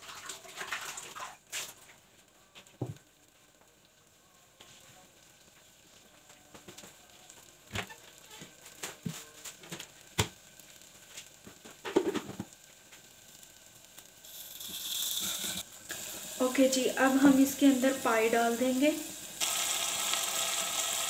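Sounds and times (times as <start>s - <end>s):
garlic and onion sizzling in oil: 0.0s - 21.0s.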